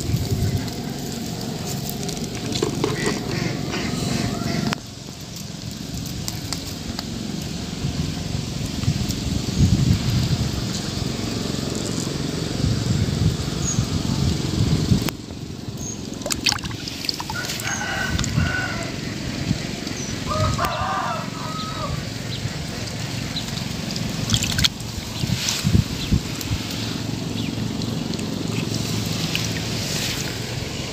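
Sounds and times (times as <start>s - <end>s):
rooster crowing: 3.0s - 4.8s, 17.2s - 19.2s, 20.2s - 22.2s
hand splashing pond water: 16.1s - 18.3s, 23.5s - 25.6s.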